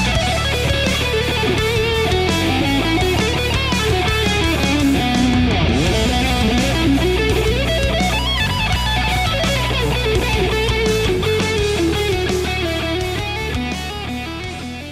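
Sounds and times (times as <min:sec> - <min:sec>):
bass and drums: 0:00.0 - 0:14.9
electric guitar lead melody: 0:00.0 - 0:14.9.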